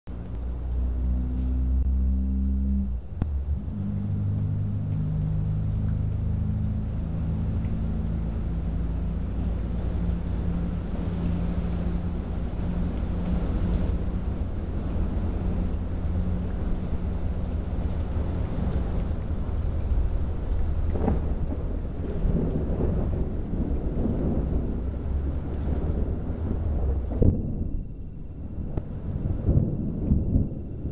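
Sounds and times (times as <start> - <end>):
rain hissing: 0.1 - 30.9
rolling thunder: 3.2 - 30.9.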